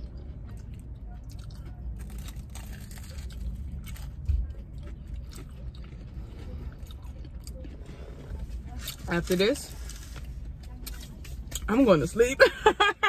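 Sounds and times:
crunchy bites and chewing: 0:00.0 - 0:09.0.

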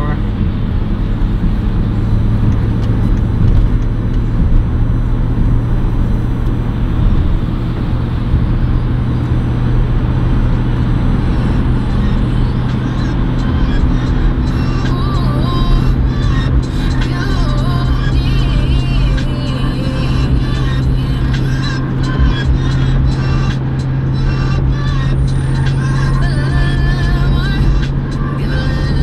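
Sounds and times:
low engine drone: 0:00.0 - 0:29.0
road and tyre roar: 0:00.0 - 0:29.0
music: 0:13.0 - 0:29.0.

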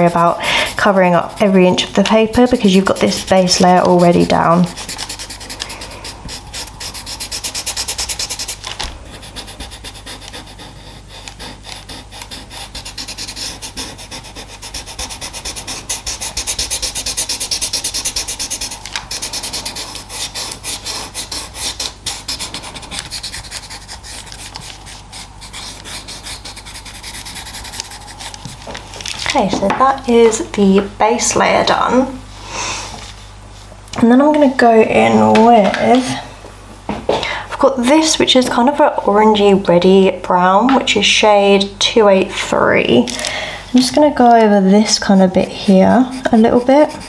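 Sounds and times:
blending stump rubbing on paper: 0:00.0 - 0:28.7, 0:44.6 - 0:47.0.

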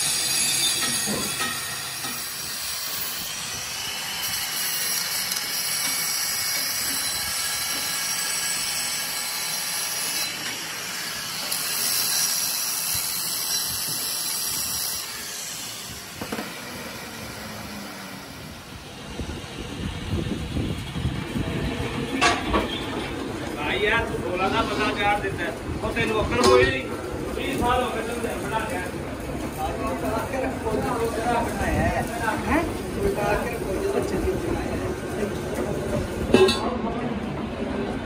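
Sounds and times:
angle grinder grinding metal: 0:00.0 - 0:19.0.

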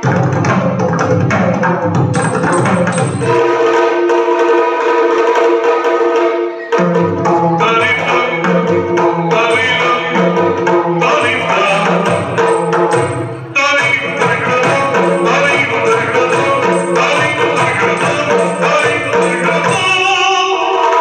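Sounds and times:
hand-played barrel drum strokes: 0:00.0 - 0:06.0, 0:06.7 - 0:21.0
person singing: 0:06.6 - 0:21.0.

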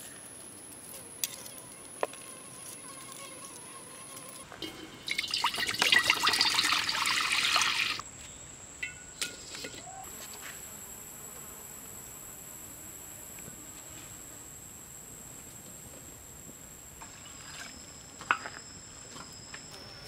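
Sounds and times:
water pouring into a metal wok: 0:05.0 - 0:08.0.

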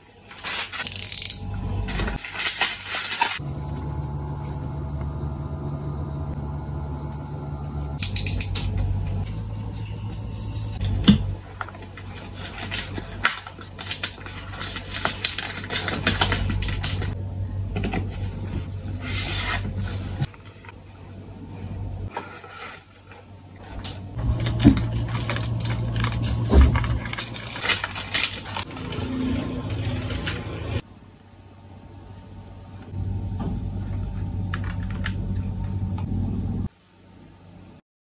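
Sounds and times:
steady low hum: 0:01.0 - 0:37.8
packaging rustling and crinkling: 0:01.8 - 0:03.4, 0:11.4 - 0:17.2, 0:22.1 - 0:30.4.

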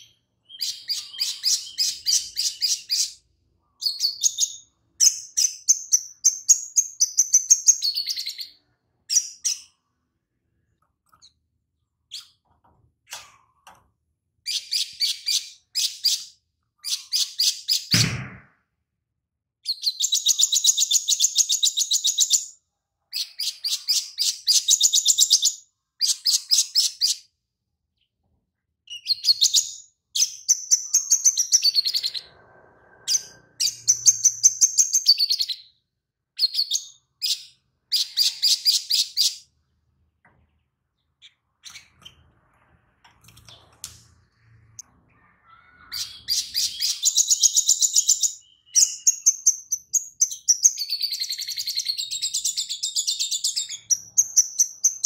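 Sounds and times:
bird high chirping song: 0:00.0 - 0:09.9, 0:14.4 - 0:18.2, 0:19.6 - 0:27.3, 0:28.8 - 0:39.7, 0:43.5 - 0:55.0.

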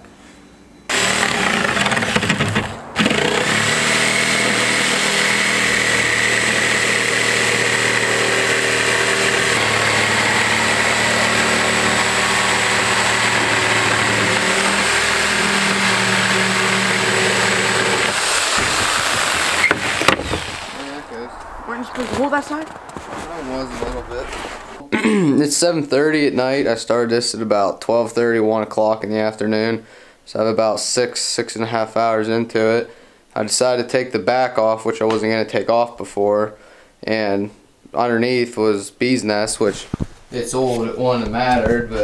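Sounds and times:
circular saw cutting plywood: 0:00.9 - 0:21.2
offcut falling knock: 0:18.5 - 0:20.6.

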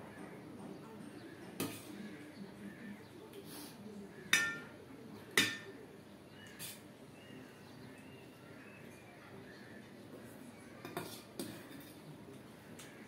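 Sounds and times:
dishes and utensils clinking: 0:04.3 - 0:04.7, 0:05.4 - 0:05.8, 0:10.8 - 0:12.0.

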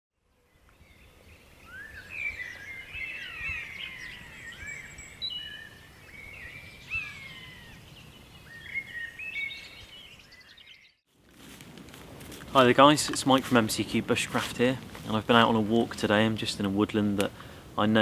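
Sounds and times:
songbirds chirping and whistling: 0:00.4 - 0:11.0.

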